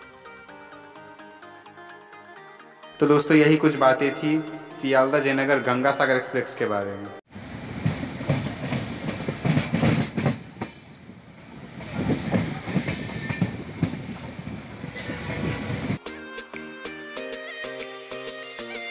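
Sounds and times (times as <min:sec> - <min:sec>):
music: 0:00.0 - 0:07.3, 0:16.0 - 0:18.9
train rumbling: 0:07.3 - 0:16.0.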